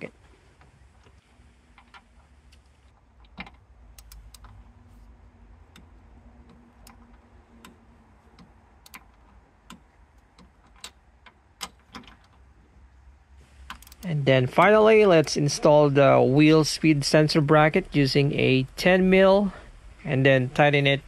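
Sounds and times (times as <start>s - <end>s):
faint low hum: 0.0s - 21.0s
ratcheting torque wrench clicks: 13.7s - 14.1s.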